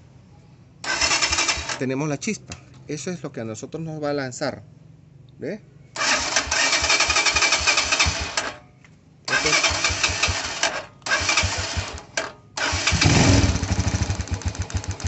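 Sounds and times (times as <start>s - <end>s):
electric starter cranking: 0.8s - 1.8s, 6.0s - 8.6s, 9.3s - 15.0s
motorcycle engine running: 12.7s - 15.0s.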